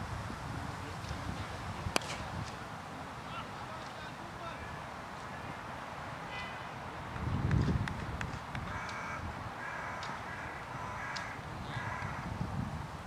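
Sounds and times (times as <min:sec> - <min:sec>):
wind rumbling on microphone: 0:00.0 - 0:03.3, 0:04.4 - 0:13.0
faint bird calls: 0:08.6 - 0:12.3.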